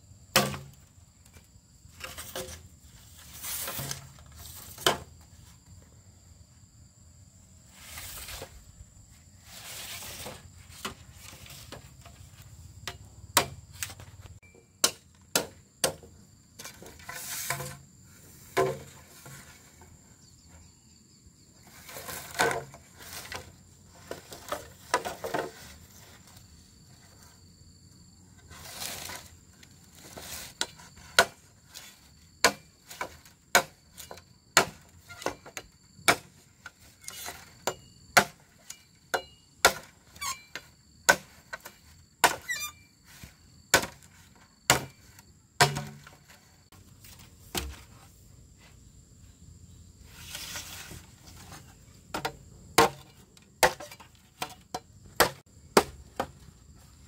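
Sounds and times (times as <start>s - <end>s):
scraping or rustling: 1.3s - 5.7s, 7.7s - 12.6s, 16.6s - 20.6s, 21.6s - 27.5s, 28.3s - 37.7s, 50.0s - 55.4s
faint high whine: 13.8s - 14.8s.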